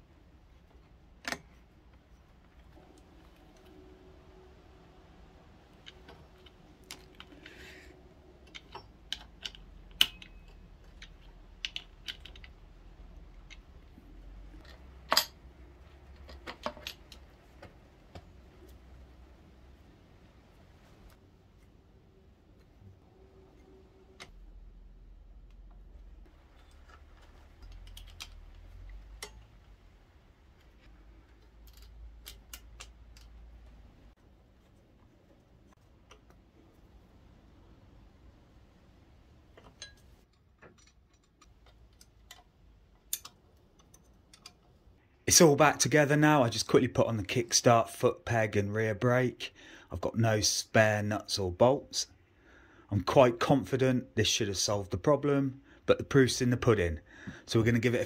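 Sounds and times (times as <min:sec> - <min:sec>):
low steady hum: 0:00.0 - 0:58.0
metal socket clicking on bolts: 0:08.4 - 0:12.7, 0:39.7 - 0:44.6.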